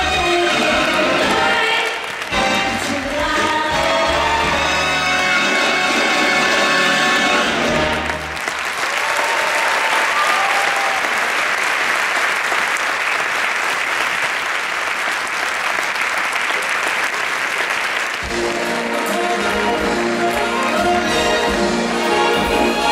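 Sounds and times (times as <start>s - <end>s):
music: 0.0s - 8.4s, 18.2s - 22.9s
crowd applauding: 1.6s - 3.2s, 4.3s - 22.9s.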